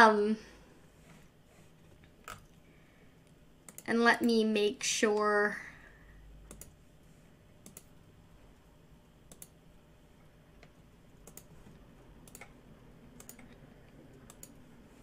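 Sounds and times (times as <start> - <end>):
low room hum: 0.0 - 15.0
computer clicks: 3.6 - 3.9, 6.5 - 6.8, 7.6 - 8.0, 9.3 - 9.6, 11.2 - 11.6, 12.2 - 12.6, 13.2 - 13.6, 14.2 - 14.6.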